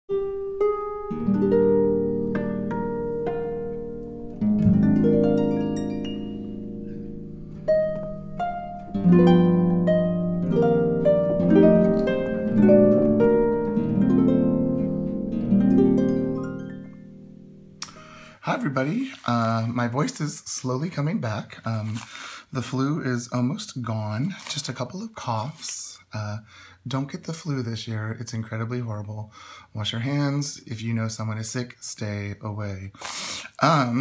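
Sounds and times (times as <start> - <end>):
plucked string melody: 0.1 - 19.6.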